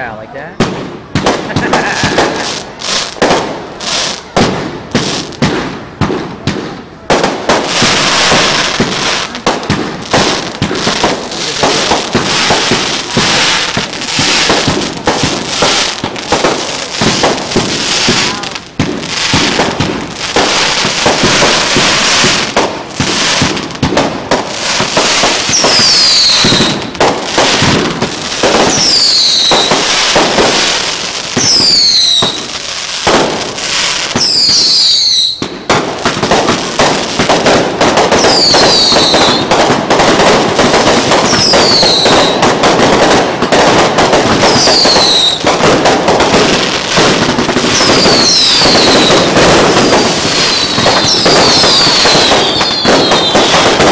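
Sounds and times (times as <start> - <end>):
fireworks booming and crackling: 0.0 - 53.9.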